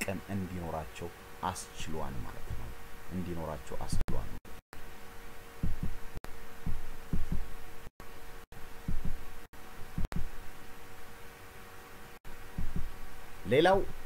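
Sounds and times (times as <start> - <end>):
faint hum: 0.0 - 14.0
dull low thumps: 5.6 - 7.6, 8.8 - 9.3, 9.9 - 10.4, 12.4 - 13.0.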